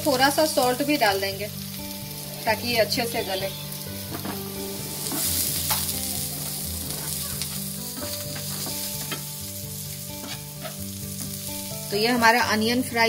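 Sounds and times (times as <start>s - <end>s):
onions sizzling in oil: 0.0s - 13.0s
spatula scraping pan: 10.2s - 11.5s.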